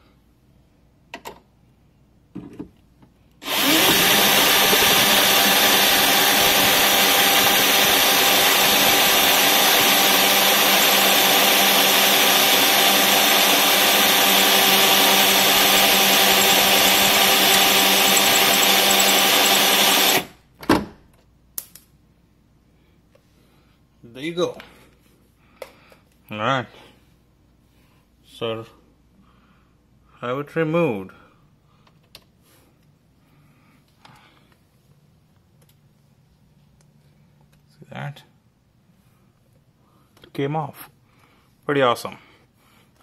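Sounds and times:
cordless drill drilling metal: 3.4s - 20.4s.

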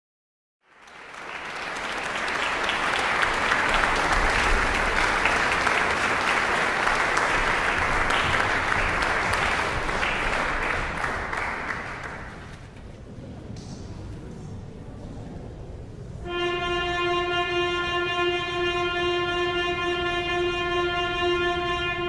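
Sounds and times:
audience applauding: 0.6s - 12.8s.

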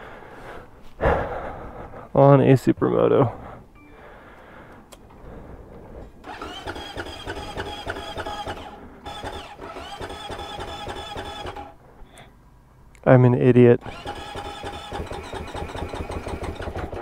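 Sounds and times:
electric starter cranking engine: 6.2s - 11.8s, 13.8s - 17.0s.

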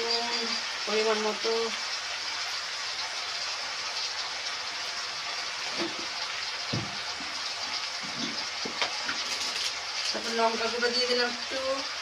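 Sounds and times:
vegetables frying in oil: 0.0s - 12.0s
soft knocks: 6.7s - 7.3s.

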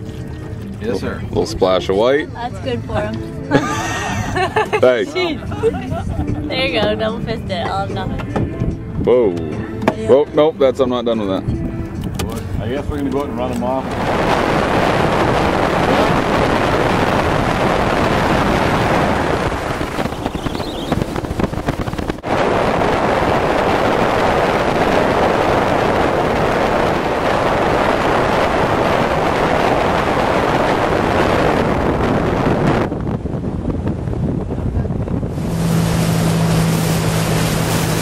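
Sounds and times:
boat engine noise: 0.0s - 38.0s
wind buffeting microphone: 0.0s - 38.0s
water rushing: 12.4s - 32.6s, 35.2s - 38.0s.

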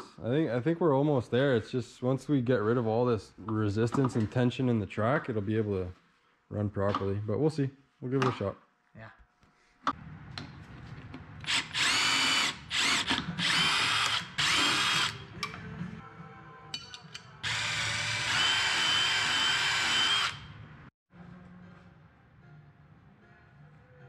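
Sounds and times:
cordless drill whining: 11.4s - 15.2s, 17.4s - 20.6s.

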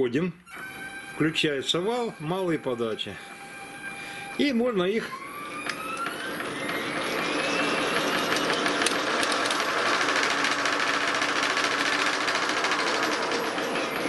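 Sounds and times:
electric motor hum and whine: 0.5s - 14.0s.

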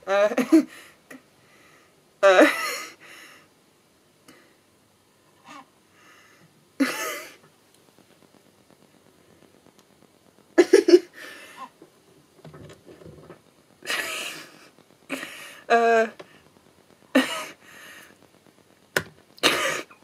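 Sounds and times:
breathing: 0.7s - 2.0s, 3.0s - 3.5s, 4.3s - 4.6s, 5.9s - 6.6s, 11.2s - 11.7s, 14.4s - 15.7s, 16.3s - 16.5s, 17.6s - 18.2s
woman laughing: 10.6s - 11.2s, 13.9s - 14.5s.

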